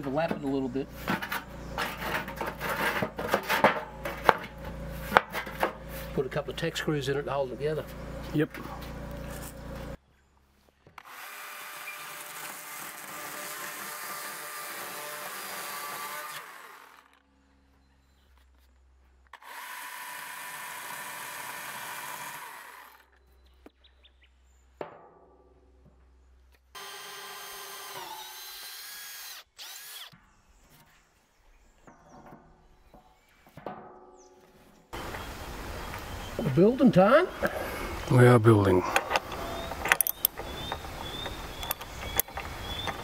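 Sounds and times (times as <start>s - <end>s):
chainsaw cutting timber: 11.0s - 17.2s, 19.4s - 23.1s, 26.8s - 30.2s
drill boring into wood: 11.0s - 17.2s, 19.4s - 23.1s, 26.8s - 30.2s.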